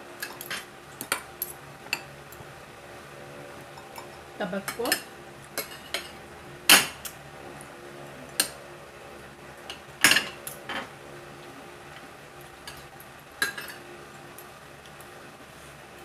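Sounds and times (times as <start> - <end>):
cutlery clinking on a plate: 13.4 - 13.8.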